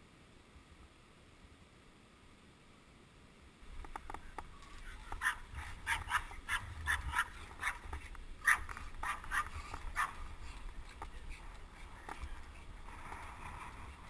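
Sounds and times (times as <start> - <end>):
wind rumble on microphone: 3.6 - 14.0
small dog yapping: 5.2 - 7.8, 8.4 - 10.2.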